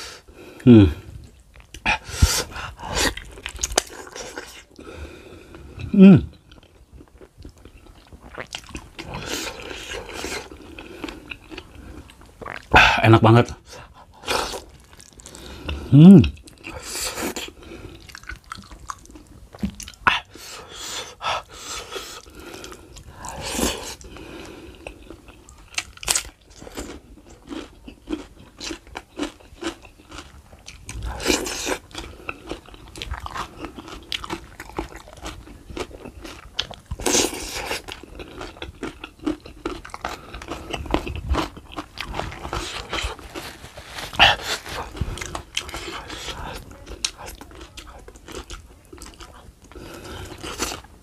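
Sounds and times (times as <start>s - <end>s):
wet chewing and mouth smacks: 1.2s - 4.8s, 16.3s - 20.3s, 24.8s - 50.9s.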